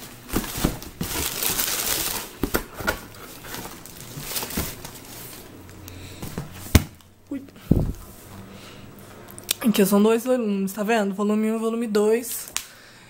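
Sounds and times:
plastic wrap crinkling: 0.0 - 7.1
knocks and bumps of book: 2.4 - 5.0, 6.2 - 7.0.

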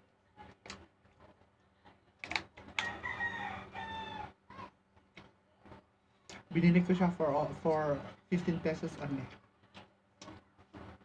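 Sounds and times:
rooster crowing: 2.8 - 4.4.

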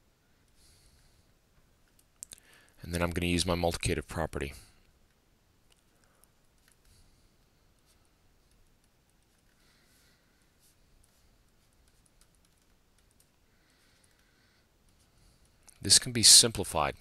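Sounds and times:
soft clicks: 1.6 - 2.4, 4.8 - 7.0
stylus scratching on a tablet: 7.6 - 15.6.

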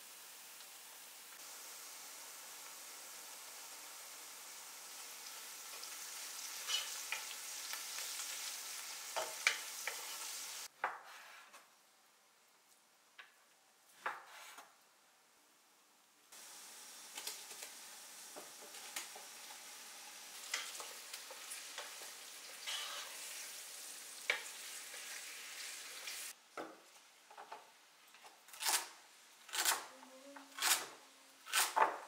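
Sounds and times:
meat sizzling in hot oil: 0.0 - 10.7, 16.4 - 26.4
wooden spatula scraping pan: 6.6 - 7.3, 22.5 - 23.2.

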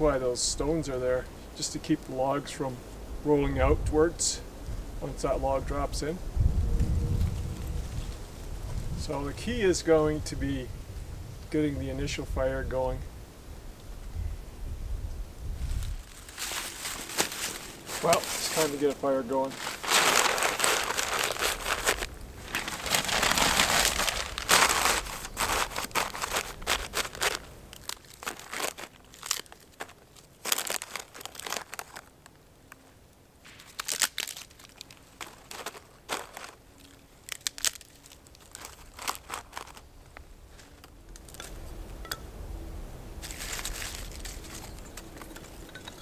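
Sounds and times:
newspaper being crumpled: 15.8 - 32.4, 33.5 - 39.9, 43.2 - 45.7.

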